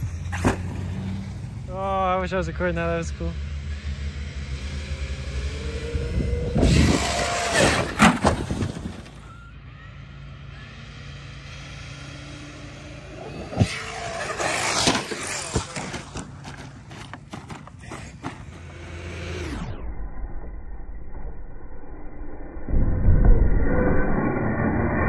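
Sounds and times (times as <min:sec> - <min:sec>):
rc car motor whine: 0:02.9 - 0:17.2, 0:18.2 - 0:22.3.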